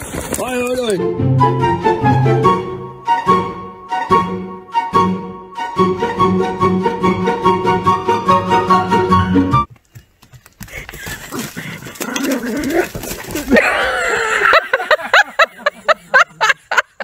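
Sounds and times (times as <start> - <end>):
music: 0.4 - 9.7
scuffling noise: 9.8 - 13.6.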